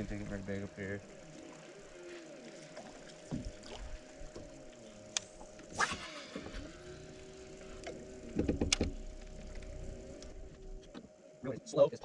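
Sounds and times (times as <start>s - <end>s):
electric boat motor whining: 0.0s - 11.4s
short swish: 5.7s - 6.3s.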